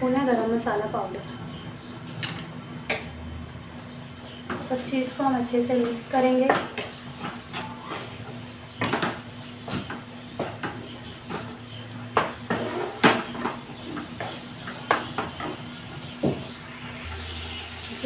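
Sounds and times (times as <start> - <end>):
wooden spatula scraping a pan: 12.4 - 14.2.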